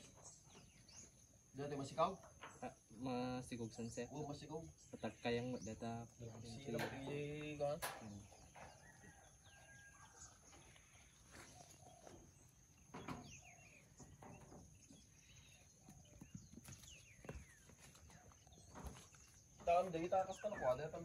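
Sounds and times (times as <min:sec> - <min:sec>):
faint farm animal calls: 0:00.0 - 0:21.0.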